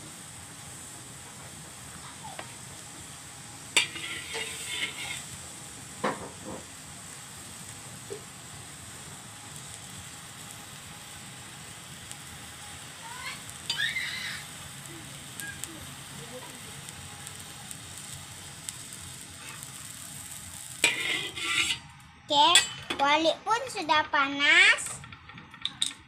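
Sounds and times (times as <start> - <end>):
gas burner hissing: 0.0 - 26.0
knocks and clatters: 24.9 - 26.0.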